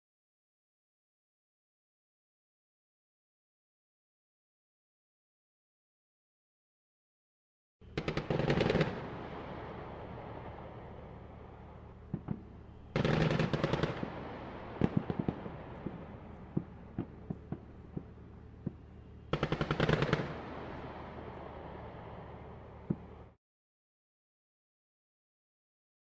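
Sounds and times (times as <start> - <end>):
machine-gun fire: 8.0 - 9.2, 13.0 - 18.1, 19.3 - 20.7
rifle shots: 8.0 - 10.0, 12.1 - 18.1, 19.3 - 21.1.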